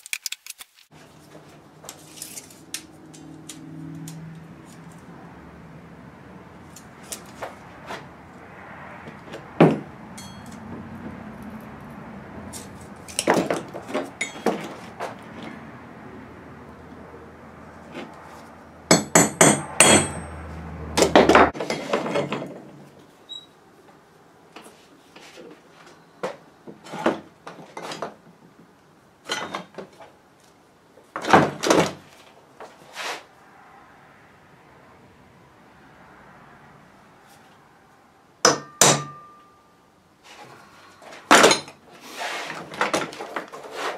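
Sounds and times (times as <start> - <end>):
metallic ringing: 10.2 - 10.7, 14.2 - 14.6, 38.5 - 39.8
metal tubing clanking: 13.1 - 14.8.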